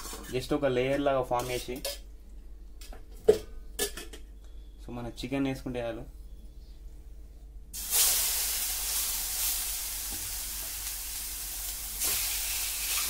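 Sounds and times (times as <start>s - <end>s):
chicken sizzling in frying pan: 7.8s - 13.0s.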